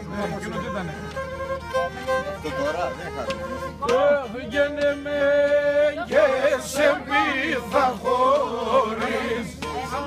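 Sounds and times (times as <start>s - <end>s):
man singing with music: 3.8s - 10.0s.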